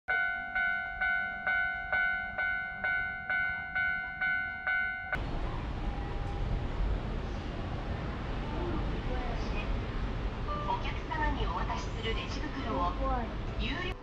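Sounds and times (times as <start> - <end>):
level crossing warning bell: 0.1 - 6.7.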